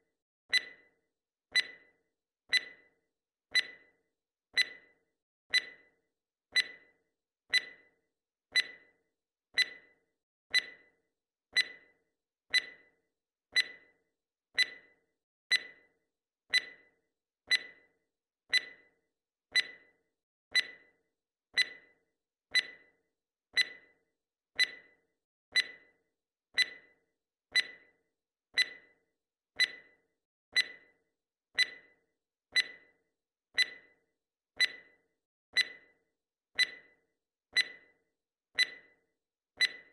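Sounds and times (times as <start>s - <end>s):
clock ticking: 33.6s - 33.8s.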